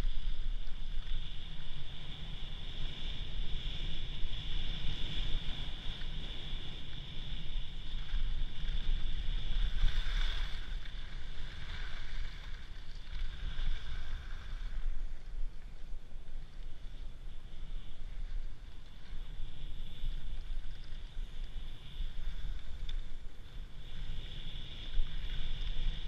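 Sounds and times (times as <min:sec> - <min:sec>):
skis sliding over snow: 0:00.0 - 0:15.9.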